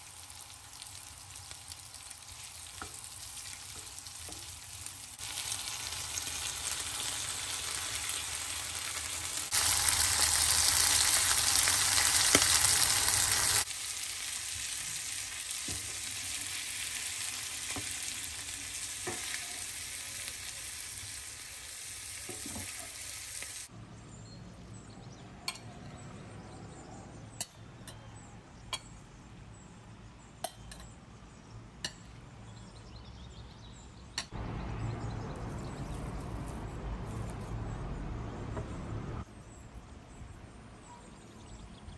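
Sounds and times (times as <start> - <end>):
food sizzling in a skillet: 0.0 - 23.7.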